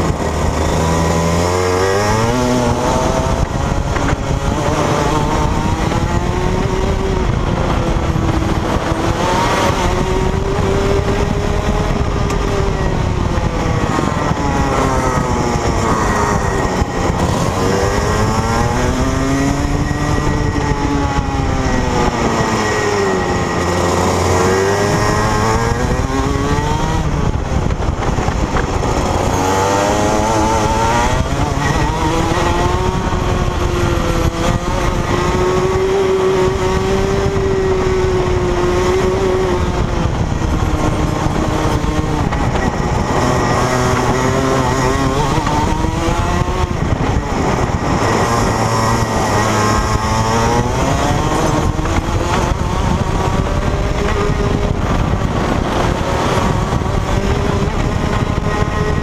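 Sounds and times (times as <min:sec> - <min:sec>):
two-stroke kart engine revving: 0:00.0 - 0:59.0.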